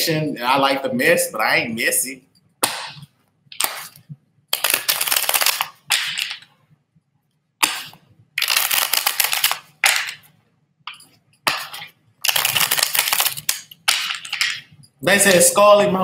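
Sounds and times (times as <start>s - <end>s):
cards being shuffled: 3.6s - 6.5s, 7.7s - 14.7s.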